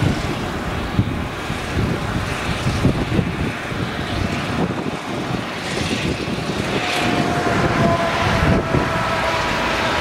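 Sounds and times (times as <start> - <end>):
rush of crop flow: 0.0 - 10.0.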